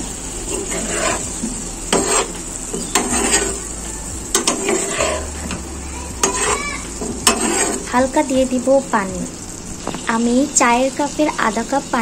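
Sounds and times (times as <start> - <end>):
oil sizzling in frying pan: 0.0 - 12.0
spatula scraping pan: 0.3 - 8.3
spatula knocking pan: 0.5 - 3.7, 4.3 - 8.1.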